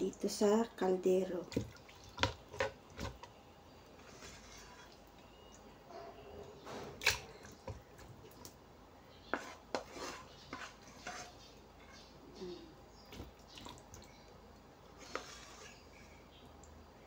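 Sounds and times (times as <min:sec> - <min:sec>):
spatula scraping frying pan: 0:04.0 - 0:05.0, 0:09.3 - 0:12.1, 0:15.0 - 0:16.0.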